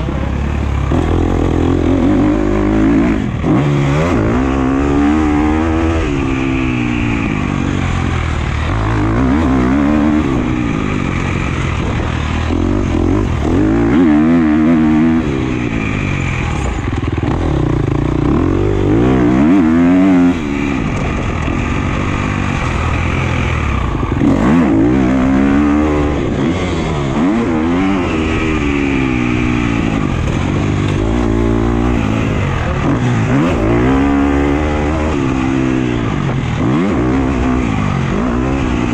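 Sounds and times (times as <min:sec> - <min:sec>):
dirt bike engine revving: 0:00.0 - 0:38.9.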